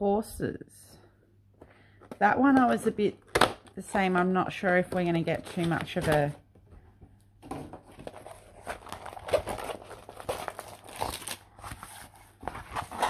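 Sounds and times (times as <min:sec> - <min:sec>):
plastic film crinkling: 0:07.8 - 0:13.0.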